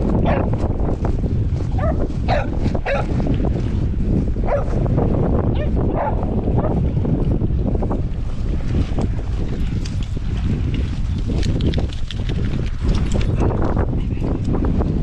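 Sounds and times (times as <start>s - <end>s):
wind rumbling on microphone: 0.0s - 15.0s
dogs barking and yipping: 0.2s - 0.5s, 1.8s - 3.1s, 4.4s - 4.8s, 5.5s - 6.8s.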